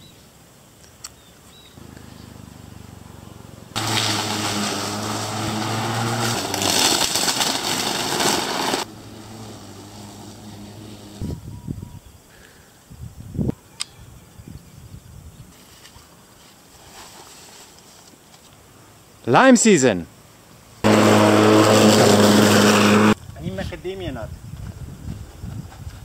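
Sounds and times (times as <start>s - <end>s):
electric lawn mower humming: 1.8s - 11.2s, 20.8s - 23.2s.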